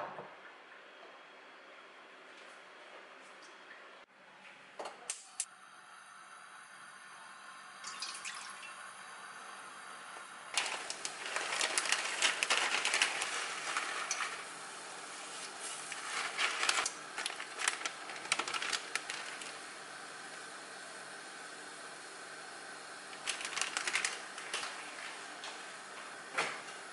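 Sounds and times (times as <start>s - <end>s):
dry noodles crackling: 10.5s - 19.7s, 23.1s - 25.3s.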